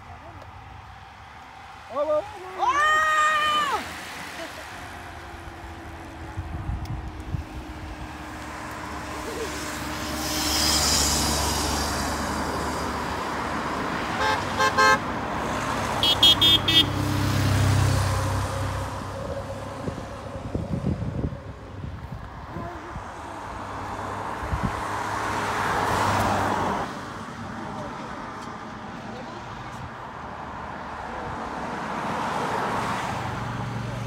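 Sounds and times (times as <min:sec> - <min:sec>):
cars driving past: 0:00.0 - 0:34.0
car horn short beeps: 0:16.0 - 0:17.0.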